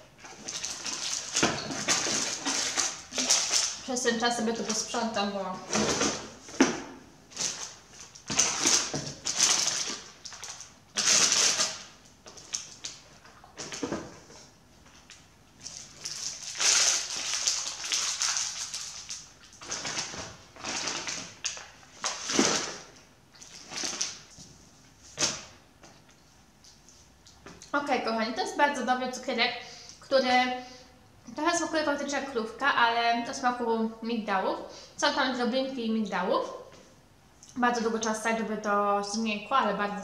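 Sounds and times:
packaging and cardboard crinkling: 0:07.3 - 0:12.8, 0:15.6 - 0:24.4.

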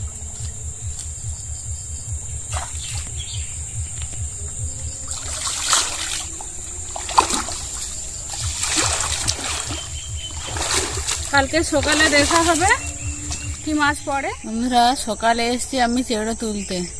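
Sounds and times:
low rumble: 0:00.0 - 0:15.9
water splashing from wading: 0:02.1 - 0:14.4.

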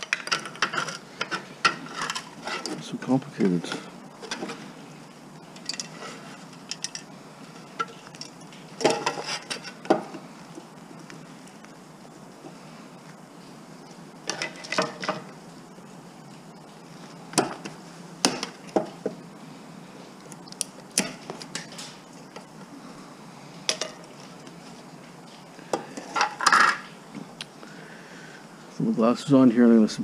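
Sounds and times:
metal scrap clinking and knocking: 0:00.0 - 0:02.8, 0:05.6 - 0:10.2, 0:14.3 - 0:15.3.

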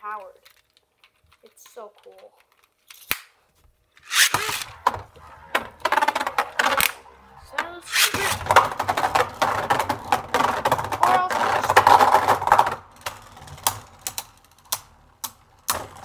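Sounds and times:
spinning tops clattering in plastic stadium: 0:04.0 - 0:04.7, 0:07.9 - 0:14.7.

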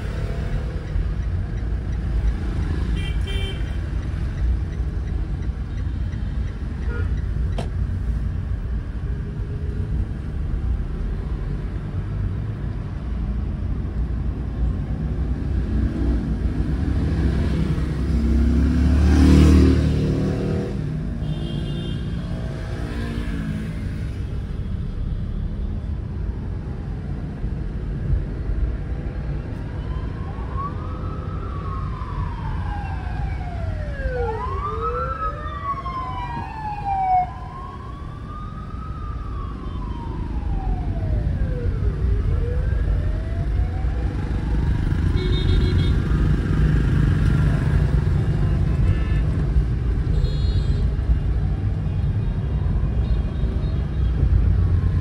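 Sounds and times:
car driving in traffic: 0:00.0 - 0:55.0
siren wailing: 0:29.8 - 0:45.2.

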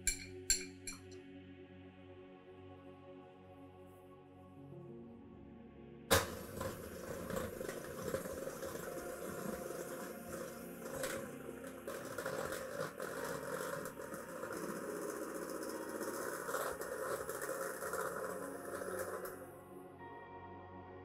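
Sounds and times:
electric hand mixer running: 0:06.1 - 0:19.5.

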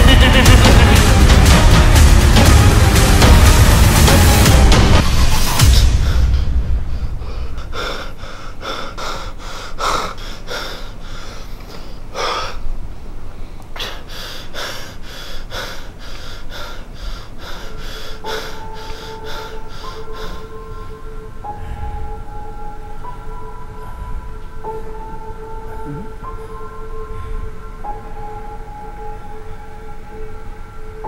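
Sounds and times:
man breathing hard: 0:05.0 - 0:22.6.

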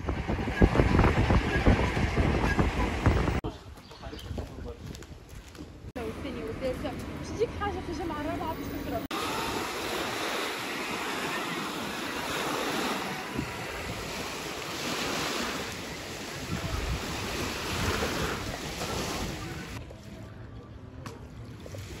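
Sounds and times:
wind buffeting microphone: 0:00.0 - 0:05.9, 0:07.4 - 0:19.8
sea waves washing in: 0:09.0 - 0:19.8.

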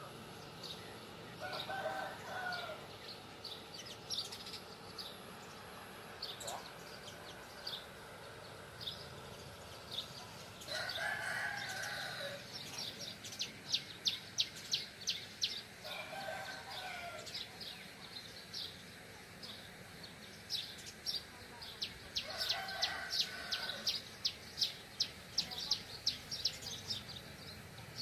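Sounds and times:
small birds chirping: 0:00.0 - 0:28.0
rooster crowing: 0:01.4 - 0:02.9, 0:10.7 - 0:12.5, 0:15.8 - 0:17.4, 0:22.2 - 0:23.9.

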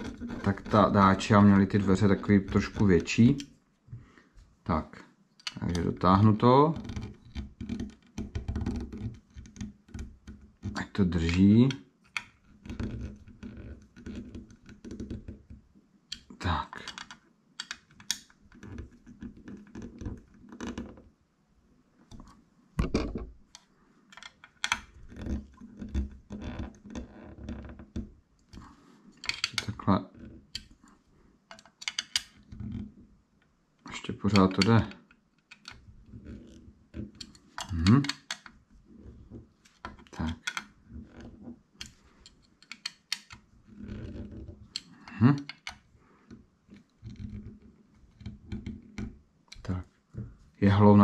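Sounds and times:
screwdriver clicks and scrapes on metal: 0:10.6 - 0:12.4, 0:16.1 - 0:20.0, 0:28.5 - 0:29.9, 0:31.5 - 0:32.8, 0:34.3 - 0:36.4, 0:37.2 - 0:38.6, 0:39.6 - 0:45.9.

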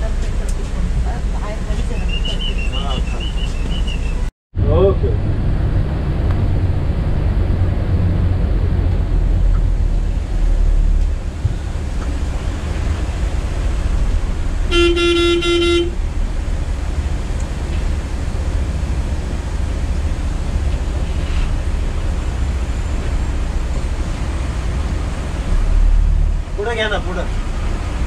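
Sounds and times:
coach diesel engine rumble: 0:00.0 - 0:28.0
road noise: 0:00.0 - 0:28.0
vehicle horn: 0:14.7 - 0:16.0.

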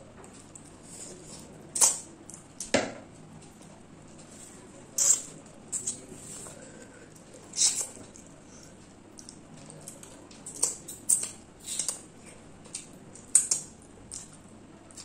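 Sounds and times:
mouth smacks and chewing clicks: 0:09.1 - 0:15.0.

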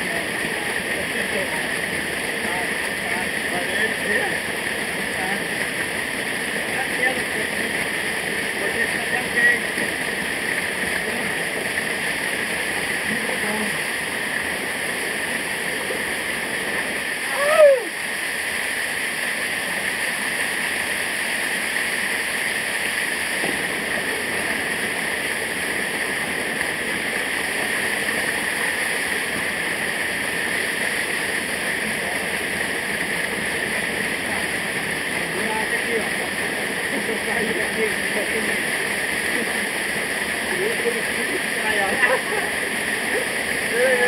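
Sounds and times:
small waterfall rushing over rocks: 0:00.0 - 0:44.0
short falling cry: 0:17.3 - 0:18.0.

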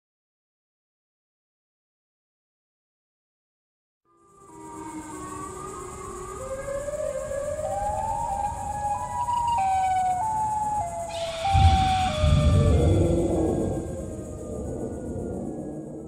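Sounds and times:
multi-tone siren wail: 0:04.4 - 0:16.0
deep rumble: 0:11.2 - 0:16.0.

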